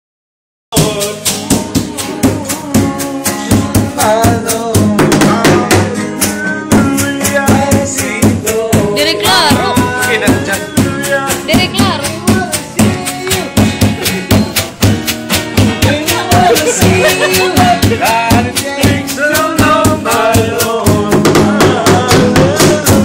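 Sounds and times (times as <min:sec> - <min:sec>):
person singing: 0:00.7 - 0:14.8, 0:15.8 - 0:23.0
music: 0:00.7 - 0:23.0
jar beaten with sticks: 0:06.7 - 0:23.0.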